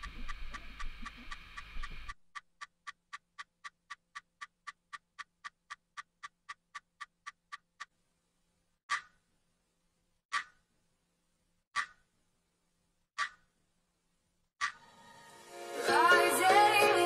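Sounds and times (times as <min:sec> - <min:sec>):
watch ticking: 0:00.0 - 0:08.0, 0:13.2 - 0:13.5.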